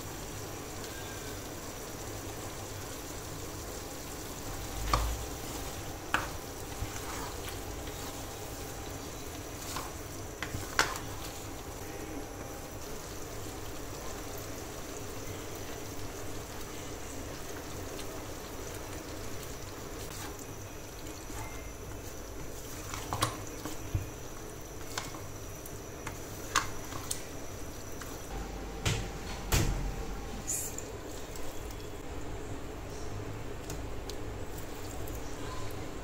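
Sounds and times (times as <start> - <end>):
wooden spatula stirring in pan: 2.9 - 14.9, 16.4 - 29.2.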